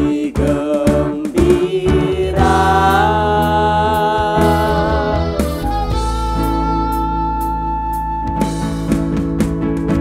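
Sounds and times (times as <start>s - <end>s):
woman singing: 0.0s - 5.5s
man singing: 0.0s - 5.9s
live band playing: 0.0s - 10.0s.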